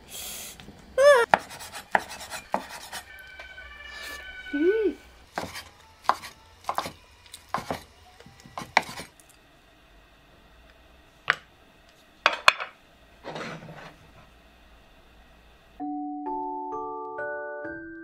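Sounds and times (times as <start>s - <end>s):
cleaver chopping on wooden board: 1.3s - 2.7s, 5.4s - 7.8s, 8.6s - 9.1s.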